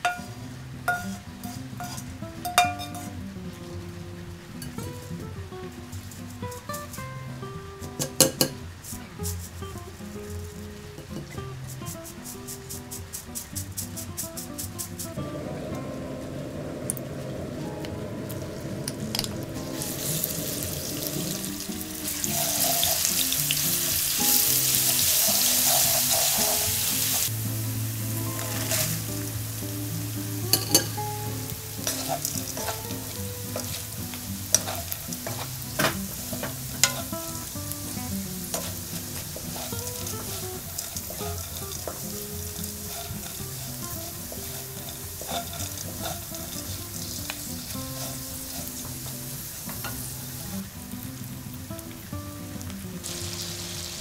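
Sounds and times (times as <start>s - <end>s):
food sizzling in a frying pan: 0.0s - 54.0s.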